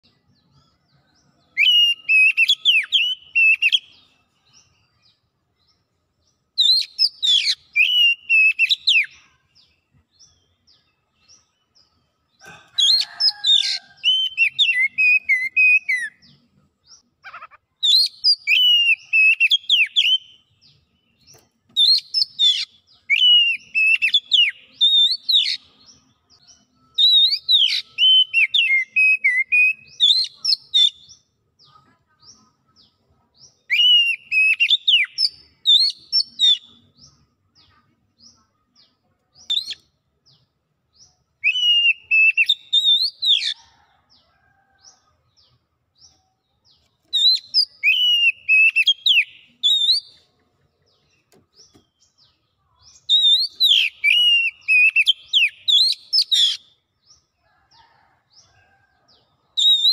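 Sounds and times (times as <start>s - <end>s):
bird singing whistled phrases: 1.6s - 4.0s, 6.6s - 9.2s, 14.0s - 16.2s, 17.8s - 20.3s, 21.8s - 25.6s, 27.0s - 31.0s, 33.7s - 36.7s, 41.4s - 43.5s, 47.2s - 50.2s, 53.0s - 56.6s, 59.6s - 59.9s.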